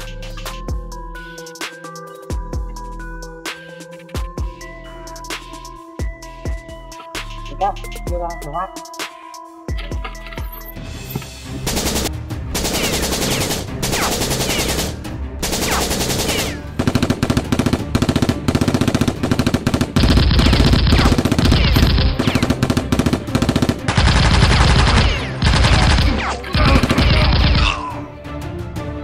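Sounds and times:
automatic gunfire bursts: 11.7s - 27.6s.

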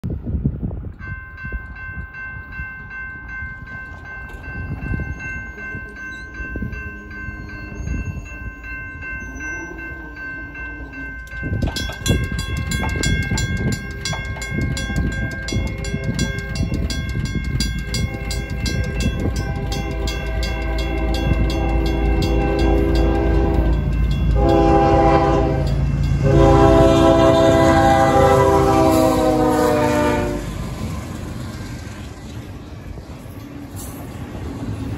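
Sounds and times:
train rumble: 0.0s - 34.9s
railroad crossing bells ringing: 0.7s - 34.9s
train horn blasts: 18.0s - 30.6s.

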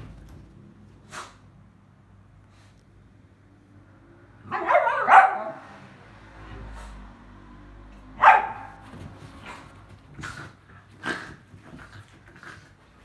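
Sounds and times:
dog barking: 4.4s - 5.7s, 8.2s - 8.8s.

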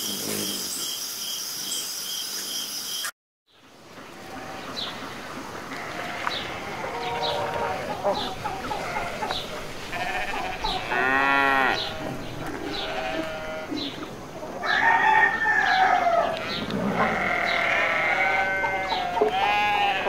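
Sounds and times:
drawn-out animal calls: 5.8s - 13.7s, 16.4s - 20.0s.

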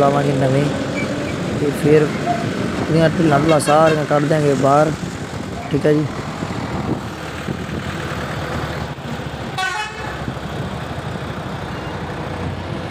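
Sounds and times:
road noise: 0.0s - 12.9s
vehicle engine running: 0.0s - 12.9s
horn toot: 9.6s - 10.2s.

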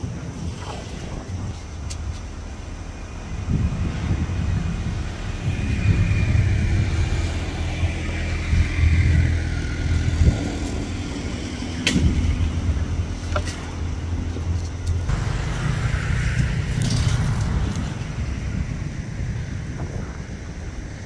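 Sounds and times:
low motor rumble: 1.1s - 21.0s.

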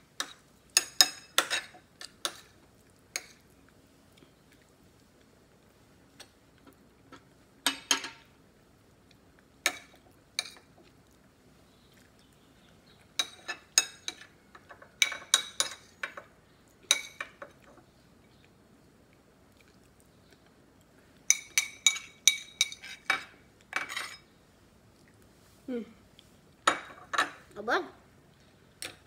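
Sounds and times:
metal spoon clinking on ceramic bowl: 21.3s - 24.2s.

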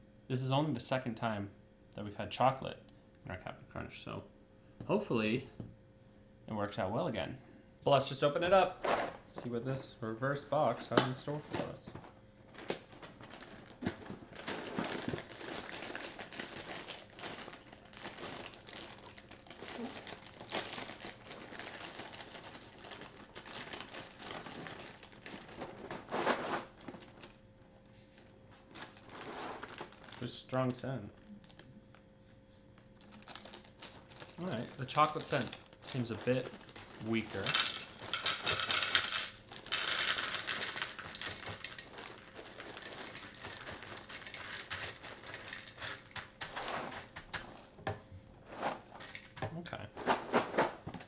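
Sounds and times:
plastic bag crinkling: 10.8s - 27.4s, 28.6s - 31.7s, 32.8s - 47.8s
cereal pouring into bowl: 34.8s - 47.6s.

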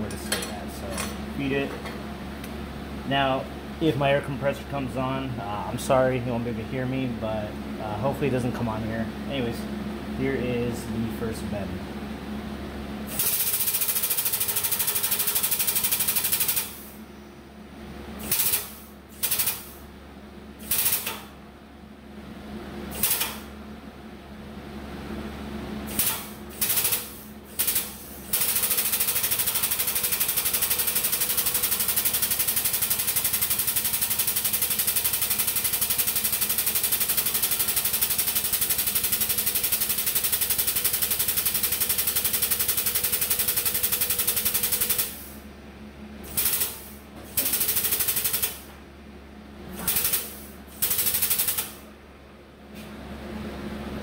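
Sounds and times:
air hydraulic pump chattering: 18.2s - 19.7s, 46.3s - 48.6s.

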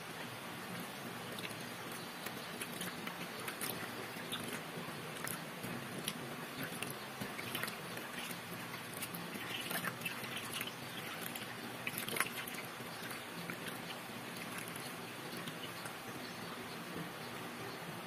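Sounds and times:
water splashing into steel basin: 6.0s - 15.9s.

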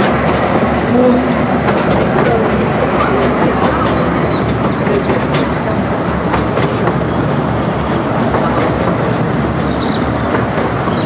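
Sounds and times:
train wheels rumbling on rail: 0.0s - 11.0s
high wheel squeaks: 9.6s - 11.0s.

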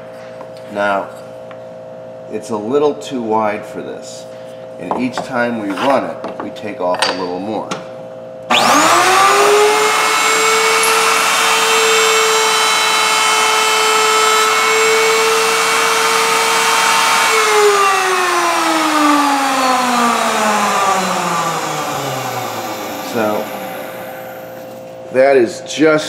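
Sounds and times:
router whining: 8.5s - 25.0s.

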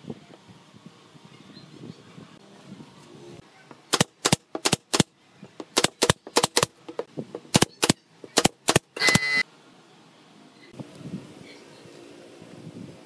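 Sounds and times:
nail gun shots: 3.9s - 6.8s, 7.5s - 9.3s.

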